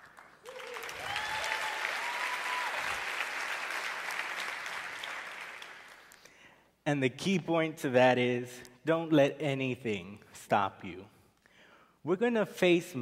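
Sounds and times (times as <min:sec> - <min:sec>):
audience applauding: 0:00.0 - 0:06.2
audience cheering: 0:00.4 - 0:05.7.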